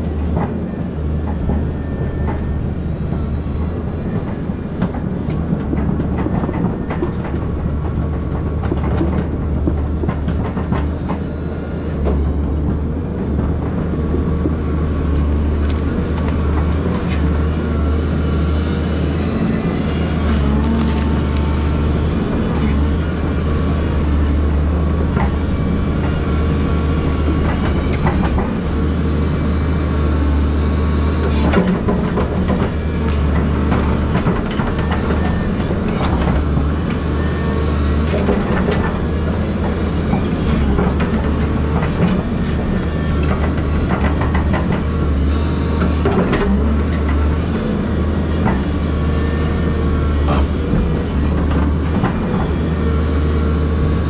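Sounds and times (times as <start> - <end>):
excavator diesel engine running: 0.0 - 54.0
knocks and clanks: 0.2 - 17.3, 20.5 - 28.8, 38.0 - 47.5.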